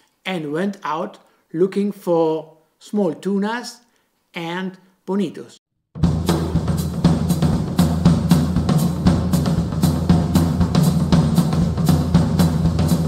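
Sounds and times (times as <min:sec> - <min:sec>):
music with steady drum beat: 0:06.0 - 0:13.0.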